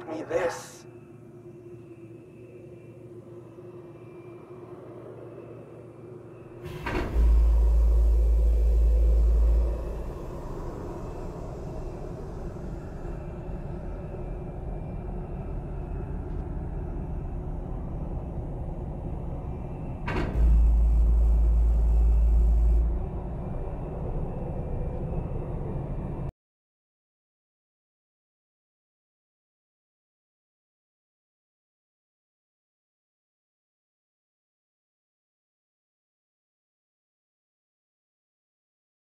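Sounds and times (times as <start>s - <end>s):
low rumble with hiss: 6.3s - 26.3s.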